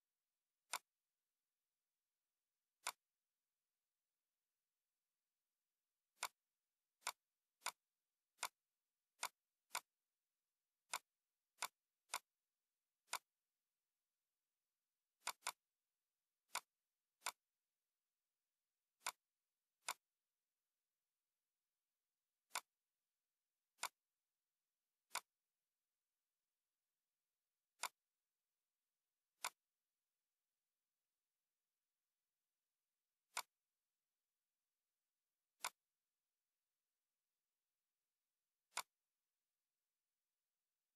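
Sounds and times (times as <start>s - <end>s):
computer mouse clicking: 0.7s - 0.9s, 2.8s - 3.1s, 6.1s - 6.4s, 7.0s - 8.6s, 9.2s - 10.0s, 10.8s - 12.4s, 13.0s - 13.4s, 15.2s - 15.8s, 16.4s - 17.5s, 19.0s - 20.2s, 22.4s - 22.8s, 23.7s - 24.0s, 25.0s - 25.4s, 27.7s - 28.1s, 29.4s - 29.7s, 33.3s - 33.6s, 35.6s - 35.9s, 38.7s - 39.1s.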